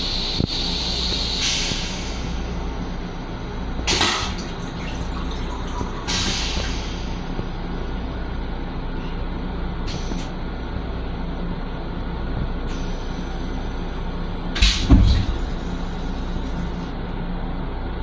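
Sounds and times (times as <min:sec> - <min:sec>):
railcar rumble and hum: 0:00.0 - 0:18.0
short hiss of air: 0:00.5 - 0:02.3, 0:06.1 - 0:07.2.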